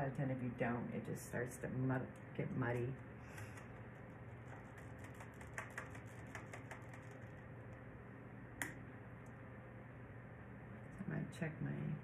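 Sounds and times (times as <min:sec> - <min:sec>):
steady low hum: 0:00.0 - 0:12.0
painting tools clicking and tapping: 0:04.6 - 0:07.2.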